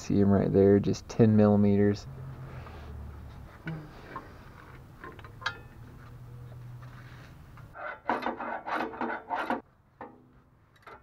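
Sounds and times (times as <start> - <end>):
hand tools rasping and scraping: 6.8 - 9.6.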